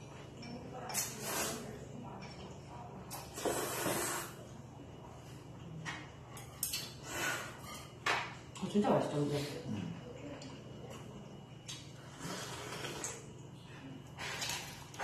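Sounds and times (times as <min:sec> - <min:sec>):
person slurping noodles: 0:03.3 - 0:04.4, 0:12.1 - 0:13.2.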